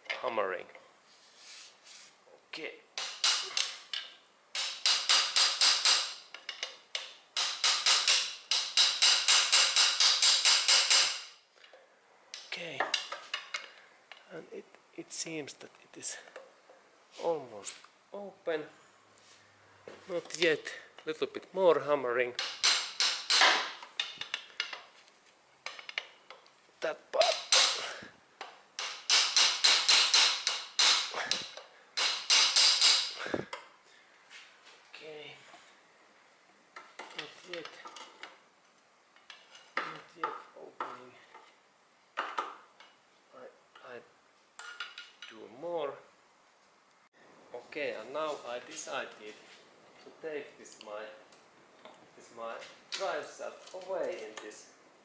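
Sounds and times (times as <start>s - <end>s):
hammer striking screwdriver: 27.3s - 27.8s, 28.8s - 33.2s.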